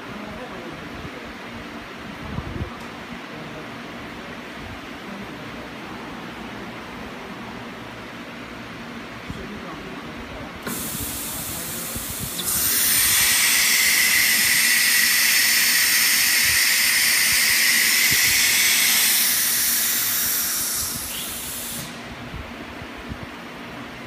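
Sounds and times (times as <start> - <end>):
compressed air hissing: 10.6 - 22.2.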